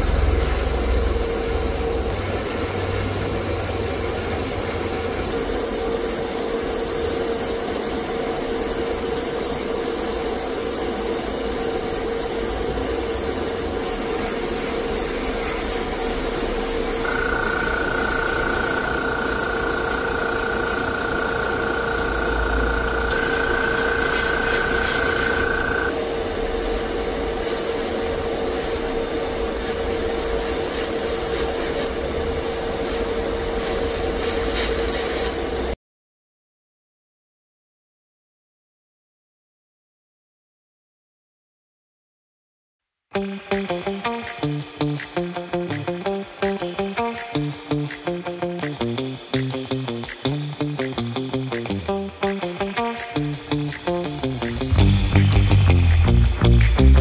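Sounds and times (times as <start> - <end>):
high whine: 0.0 - 9.0, 11.3 - 27.4, 43.2 - 57.0
airbrush spraying hiss: 0.0 - 25.9, 26.6 - 32.0, 32.8 - 35.6, 43.2 - 57.0
steady hum: 0.0 - 35.8.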